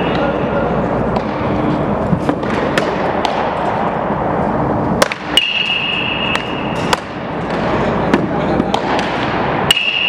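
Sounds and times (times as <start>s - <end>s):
metallic bat strike with ringing ping: 5.3s - 7.0s, 9.7s - 10.0s.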